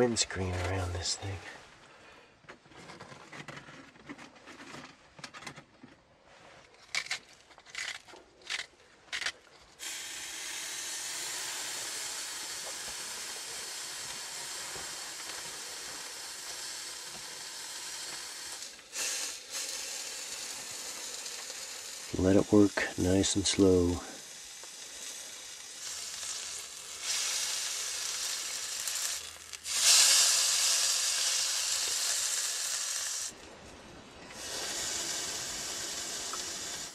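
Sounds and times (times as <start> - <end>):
steak sizzling: 9.8 - 33.3, 34.3 - 36.9.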